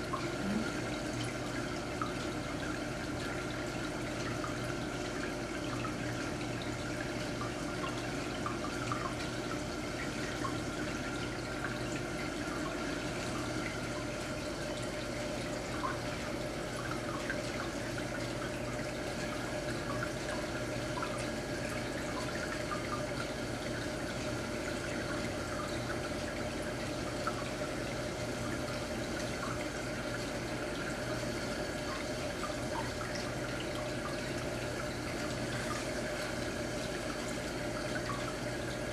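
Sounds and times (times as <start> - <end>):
water dripping: 0.0 - 27.6
low steady hum: 0.0 - 38.9
water trickling and splashing: 0.0 - 38.9.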